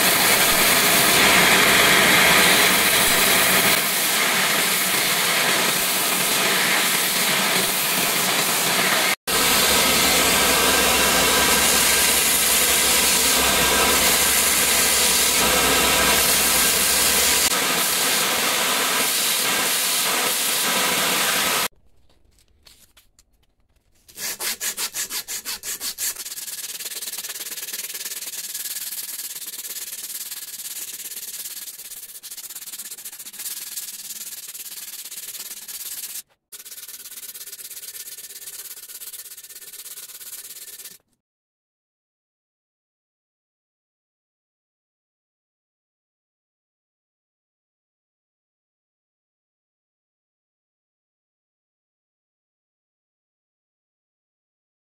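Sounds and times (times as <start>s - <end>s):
hand sanding wooden handle: 0.0s - 21.6s, 24.0s - 41.0s
belt grinder sanding wood: 0.0s - 21.7s, 24.0s - 41.0s.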